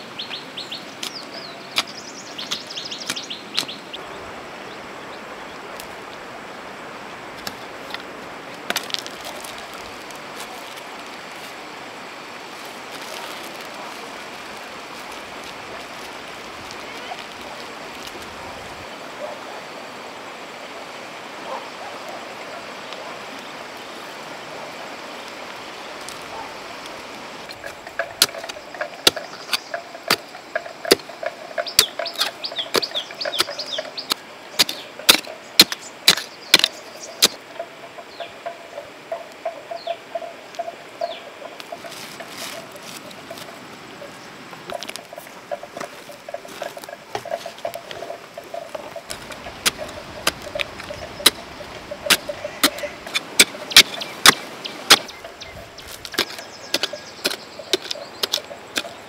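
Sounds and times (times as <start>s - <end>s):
outdoor background hiss: 0.0s - 59.0s
spade chopping stony soil: 1.0s - 3.8s, 7.4s - 10.8s, 27.5s - 37.4s, 49.0s - 55.2s, 55.8s - 59.0s.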